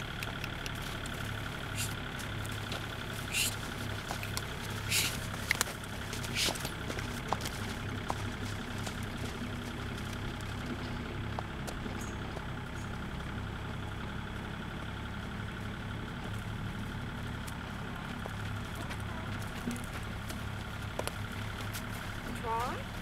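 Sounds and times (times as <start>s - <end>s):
low mechanical hum: 0.0s - 23.0s
faint clicks: 0.1s - 1.2s.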